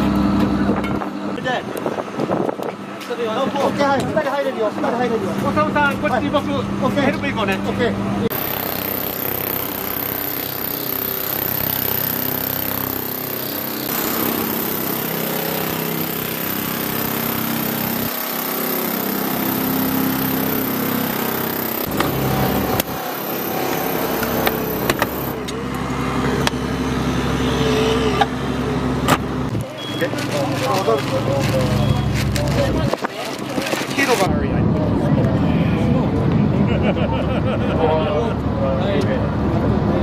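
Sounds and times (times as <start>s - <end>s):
small petrol engine running: 8.3s - 34.3s.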